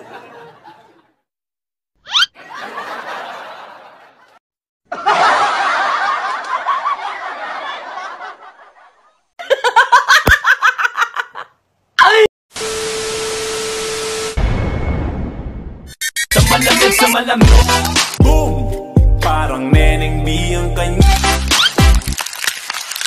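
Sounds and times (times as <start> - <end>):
crowd laughter: 0.0 - 1.2, 2.4 - 11.5.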